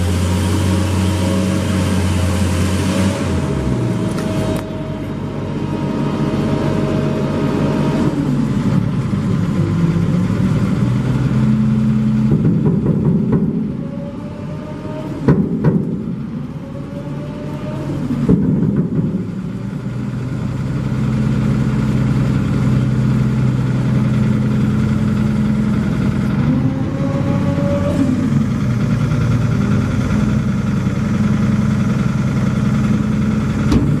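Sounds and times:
engine running steadily: 0:00.0 - 0:34.0
short rising whines: 0:00.7 - 0:08.6, 0:13.5 - 0:18.3, 0:25.8 - 0:29.1.

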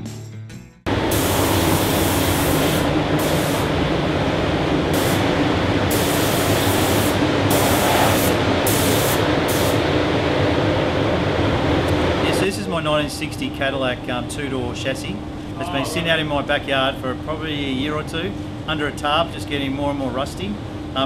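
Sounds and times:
spray gun hissing: 0:00.9 - 0:03.8, 0:04.9 - 0:09.8
ventilation drone: 0:00.9 - 0:21.0.

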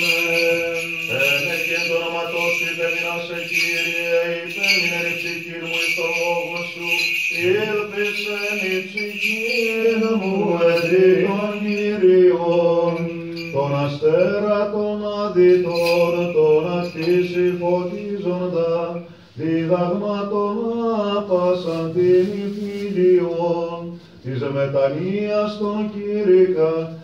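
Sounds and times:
man chanting melismatic hymn: 0:00.0 - 0:27.0.

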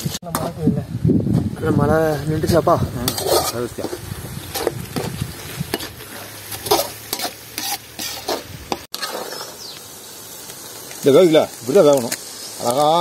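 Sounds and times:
food sizzling in a pan: 0:00.0 - 0:13.0
spoon stirring and scraping pan: 0:02.1 - 0:09.8.

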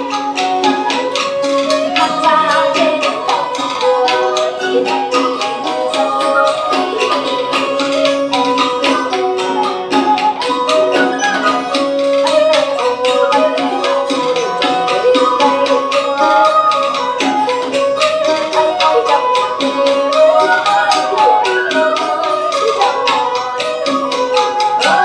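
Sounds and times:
quick hand percussion: 0:00.0 - 0:25.0
sliding melody: 0:00.0 - 0:25.0.

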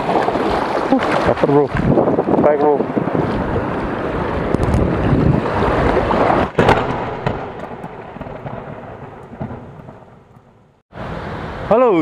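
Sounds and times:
wind buffeting microphone: 0:00.0 - 0:10.7
rumbling boom: 0:01.8 - 0:10.8.

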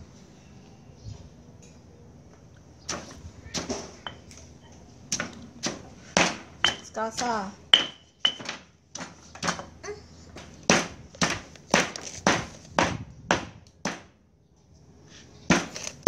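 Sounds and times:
stone pestle pounding in mortar: 0:05.2 - 0:09.6, 0:10.7 - 0:14.1.

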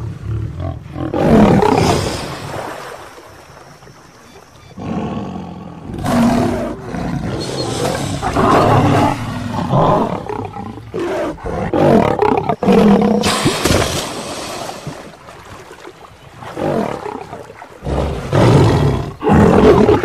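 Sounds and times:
lion roaring and growling: 0:00.0 - 0:02.0, 0:04.8 - 0:13.3, 0:16.5 - 0:20.0.

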